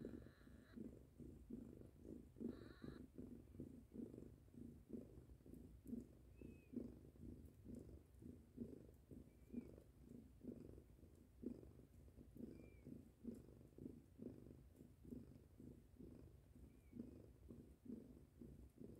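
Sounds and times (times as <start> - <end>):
cat purring: 0.0 - 18.9
faint high peeps: 2.4 - 3.1.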